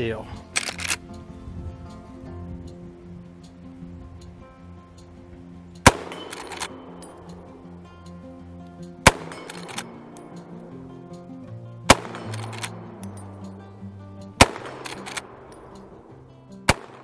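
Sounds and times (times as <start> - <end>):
background music: 0.0 - 17.0
rifle lever clacks: 0.5 - 1.1, 5.8 - 7.4, 8.8 - 10.5, 11.9 - 13.3, 14.4 - 15.9
rifle shots echoing: 5.8 - 7.6, 9.0 - 10.7, 11.8 - 13.6, 14.4 - 17.0.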